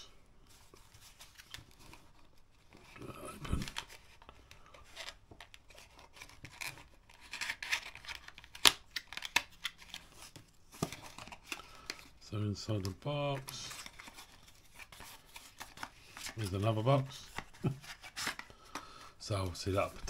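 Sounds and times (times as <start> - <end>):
cardboard rustling and scraping: 13.4 - 18.5.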